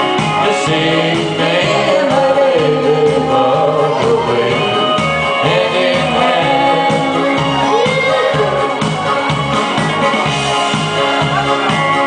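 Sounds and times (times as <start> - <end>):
amplified music with bass beat: 0.0 - 12.0
person singing into a microphone: 0.3 - 9.3.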